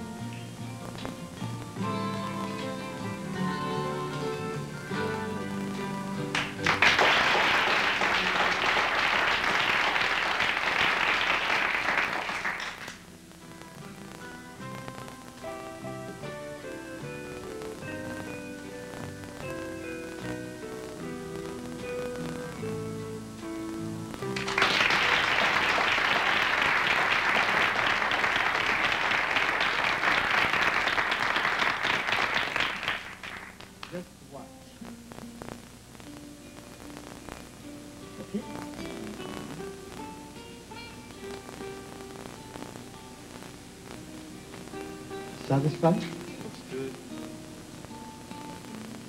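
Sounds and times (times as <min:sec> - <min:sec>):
guitar music: 0:00.0 - 0:49.0
audience applauding: 0:06.2 - 0:13.1, 0:24.2 - 0:34.0.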